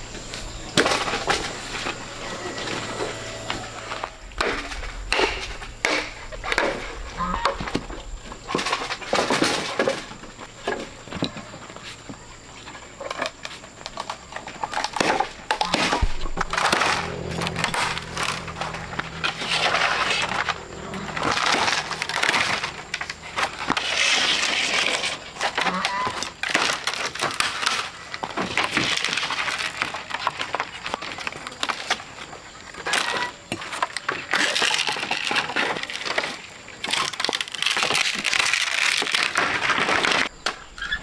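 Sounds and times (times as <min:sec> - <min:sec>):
bamboo cracking and tearing: 0:19.5 - 0:32.2, 0:32.8 - 0:40.6.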